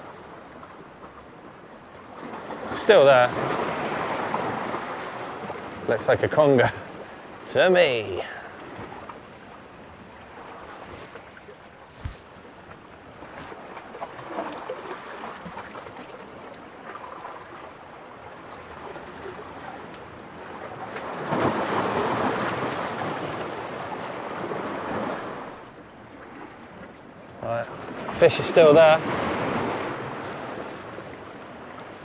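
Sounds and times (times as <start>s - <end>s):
wind: 0.0s - 32.0s
sea washing against rocks: 2.3s - 16.2s, 27.8s - 30.9s.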